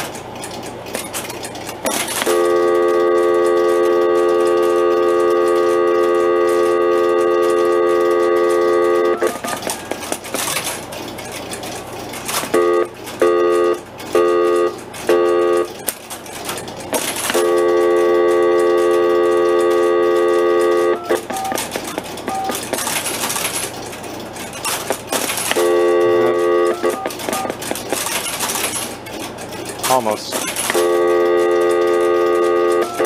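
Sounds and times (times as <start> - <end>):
relays clicking and chattering: 0.0 - 33.0
buzzy telephone tone: 2.2 - 9.8, 12.5 - 15.8, 17.3 - 21.6, 25.6 - 27.6, 30.7 - 33.0.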